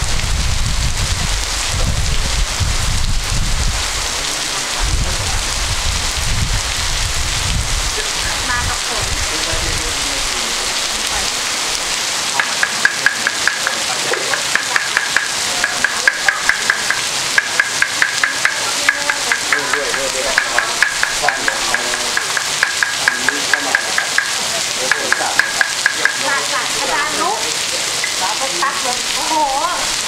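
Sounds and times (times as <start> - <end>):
rain hiss: 0.0 - 30.0
sharp high clicks: 12.4 - 26.3.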